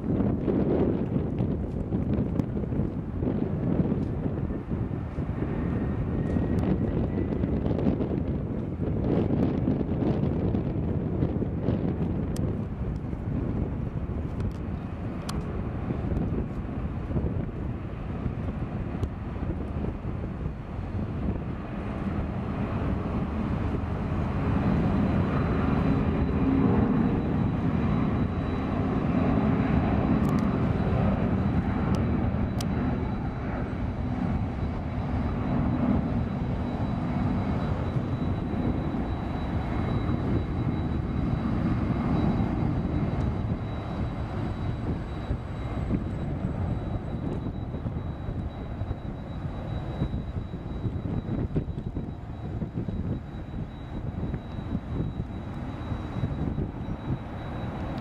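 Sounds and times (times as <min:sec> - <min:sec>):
jet engines at takeoff: 0:00.0 - 0:58.0
thin high whine: 0:22.2 - 0:58.0.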